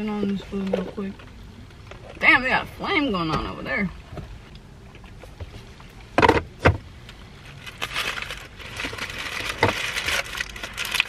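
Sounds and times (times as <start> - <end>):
food wrappers crinkling: 7.5 - 11.0.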